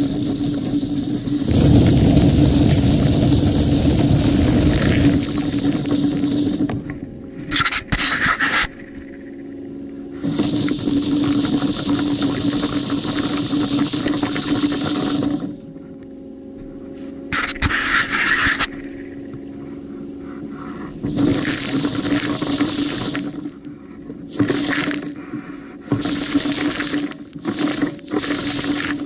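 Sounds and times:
compressed air hissing through ductwork: 0.0s - 7.2s, 10.2s - 15.6s
steady low hum: 0.0s - 7.5s.

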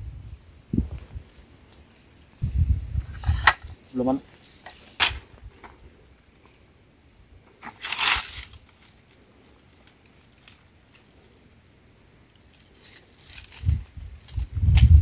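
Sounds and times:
high insect drone: 0.0s - 15.0s
dry leaves rustling and crunching: 7.6s - 11.2s, 12.4s - 14.7s.

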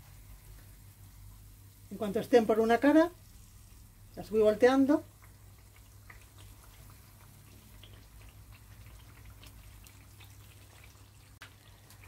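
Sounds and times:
oil bubbling with crackles: 0.0s - 12.0s.

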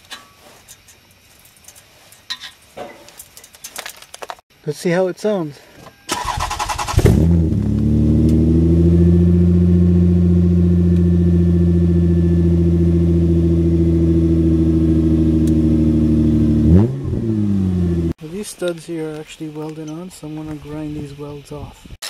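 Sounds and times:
engine starter cranking: 6.1s - 7.6s.

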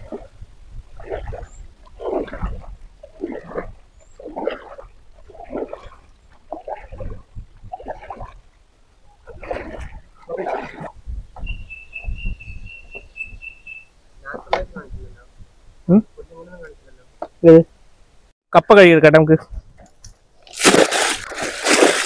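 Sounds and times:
paddle splashing in water: 0.0s - 8.6s, 9.2s - 11.0s, 20.4s - 22.0s
bird chirps: 11.4s - 13.9s.

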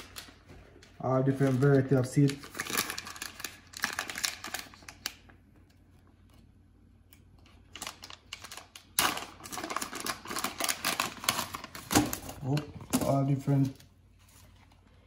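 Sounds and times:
plastic packet crinkling: 0.0s - 5.4s, 7.4s - 13.9s.

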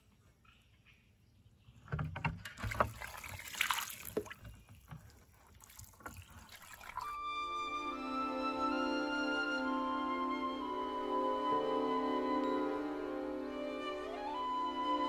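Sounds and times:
water splashing on stone: 2.6s - 7.2s
soft flute music: 7.0s - 15.0s.

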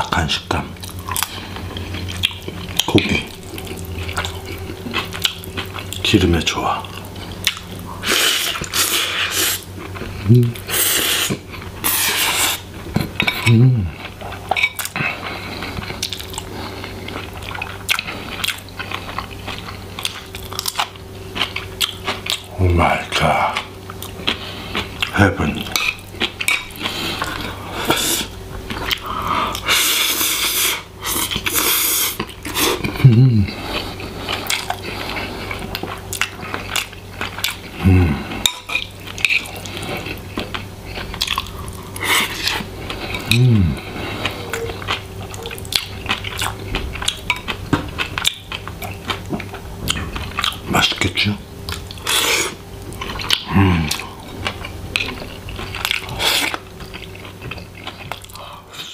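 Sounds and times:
person chewing and crunching food: 0.0s - 58.9s
low voice humming: 13.4s - 14.0s, 32.7s - 33.6s, 37.8s - 38.4s, 43.2s - 44.8s, 53.4s - 54.2s.

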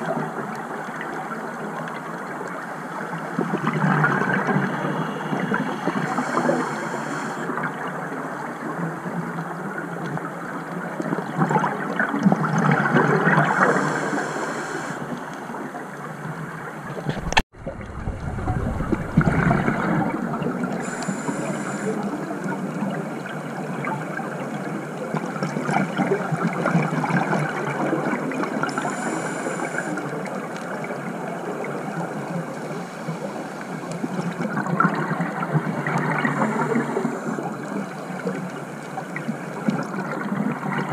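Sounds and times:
underwater bubbles gurgling: 0.0s - 40.9s
diver breathing through regulator: 5.9s - 7.5s, 13.4s - 15.3s, 20.8s - 22.0s, 28.7s - 30.0s, 36.2s - 37.6s.

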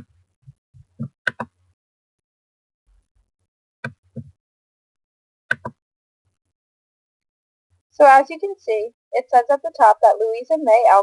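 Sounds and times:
computer mouse clicking: 5.5s - 5.8s.

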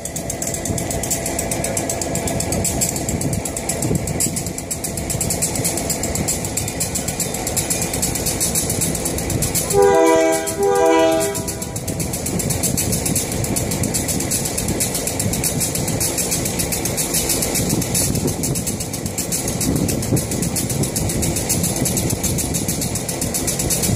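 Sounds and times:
engine idling rumble: 0.0s - 23.9s
locomotive air horn blasts: 9.6s - 11.9s.

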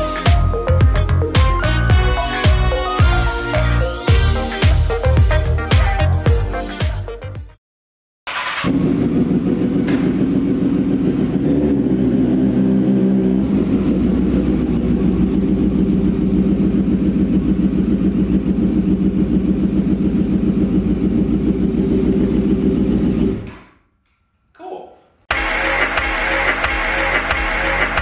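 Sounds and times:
motorcycle engine idling: 8.7s - 23.5s.

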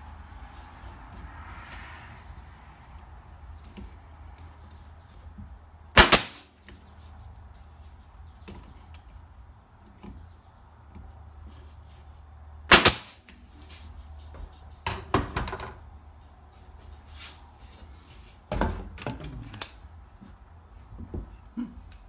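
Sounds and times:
nail gun firing: 6.0s - 6.5s, 12.7s - 13.3s.

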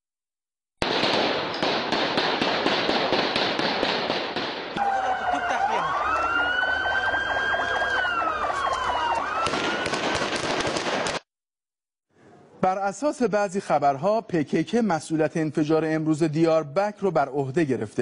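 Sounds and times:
emergency vehicle siren wailing: 4.8s - 10.0s
noisy street commotion: 4.8s - 10.8s.

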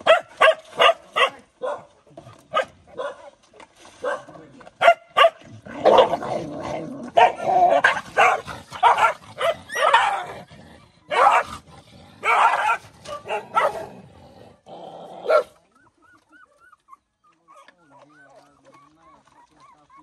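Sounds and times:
dogs snarling growling and barking: 4.0s - 15.7s.

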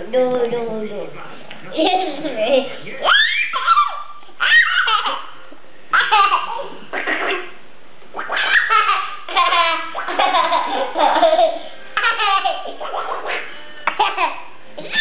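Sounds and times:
child giggling: 1.8s - 5.4s, 8.5s - 15.0s.

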